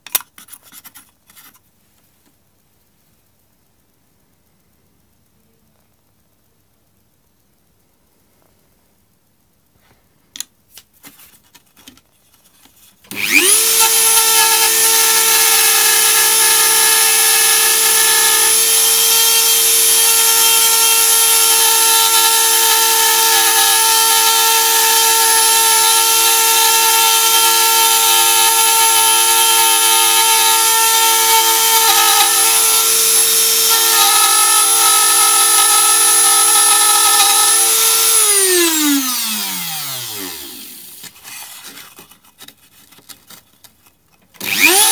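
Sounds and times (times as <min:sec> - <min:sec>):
rotary tool whining: 0:13.0 - 0:42.2, 0:44.4 - 0:44.9.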